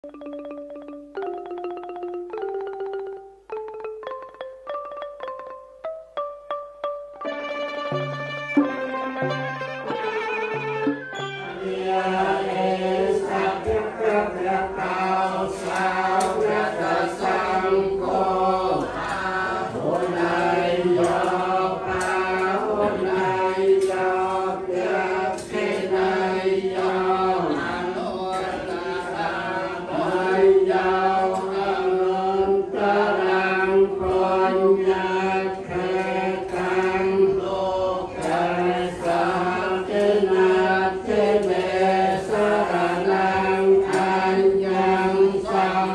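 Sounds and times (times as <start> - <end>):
group of voices chanting: 11.6 - 45.9.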